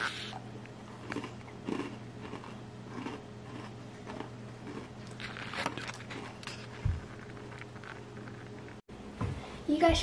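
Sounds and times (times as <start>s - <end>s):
person chewing crunchy cracker: 0.0s - 8.8s.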